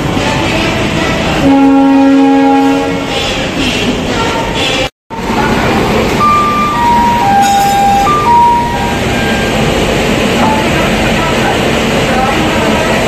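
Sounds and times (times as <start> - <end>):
train rumble and hiss: 0.0 - 13.0
chime of descending tones: 6.2 - 9.5.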